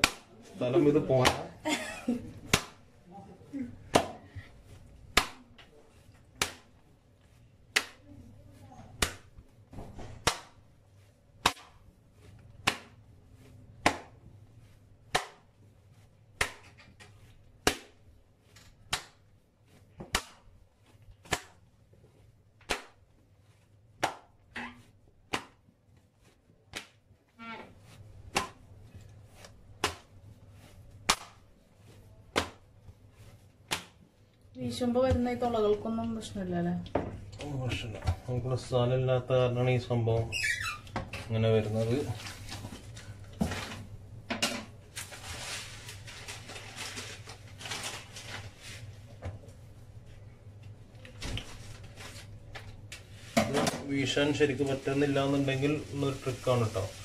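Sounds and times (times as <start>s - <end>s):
dough slapped on countertop: 0.0s - 0.3s, 1.2s - 1.5s, 2.4s - 2.9s, 3.9s - 4.2s, 5.1s - 5.5s, 6.3s - 6.8s, 7.7s - 8.0s, 8.9s - 10.6s, 11.4s - 11.8s, 12.6s - 13.0s, 13.8s - 14.2s, 15.1s - 15.5s, 16.4s - 16.8s, 17.6s - 18.0s, 18.8s - 19.3s, 22.6s - 23.0s, 24.0s - 24.4s, 25.3s - 25.6s, 26.7s - 27.0s, 28.2s - 28.6s, 29.8s - 30.2s, 31.0s - 31.5s, 32.3s - 32.7s, 33.6s - 34.0s.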